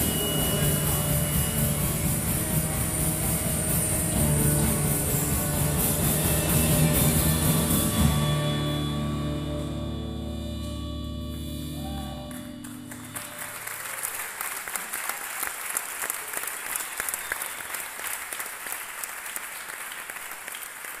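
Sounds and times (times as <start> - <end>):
band sustained chord: 0.0 - 13.6
audience applauding: 11.3 - 21.0.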